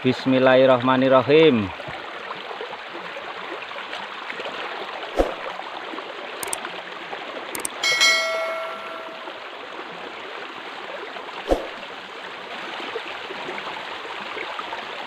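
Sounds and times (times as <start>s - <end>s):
short clicks: 7.6s - 7.8s
bell-like chime: 7.7s - 9.5s.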